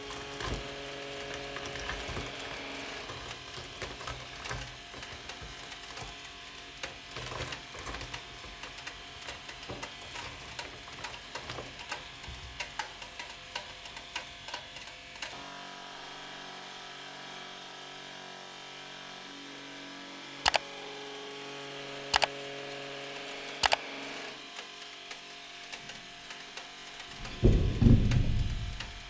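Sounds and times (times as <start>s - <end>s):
sharp clicks: 20.4s - 20.6s, 22.1s - 22.4s, 23.6s - 23.8s.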